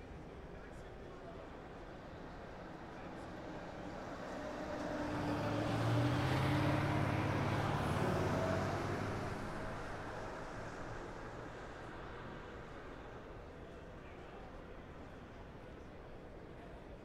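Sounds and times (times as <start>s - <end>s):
vehicle engine passing by: 4.2s - 10.9s.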